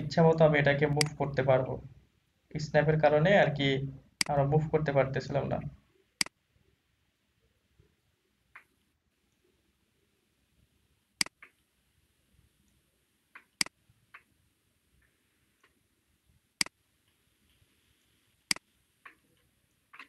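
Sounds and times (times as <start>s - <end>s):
computer mouse clicks: 11.2s - 11.6s.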